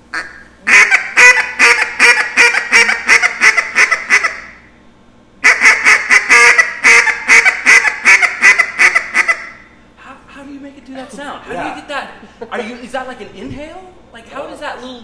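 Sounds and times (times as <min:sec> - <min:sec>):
duck call quacks: 0:00.1 - 0:04.6, 0:05.4 - 0:09.6.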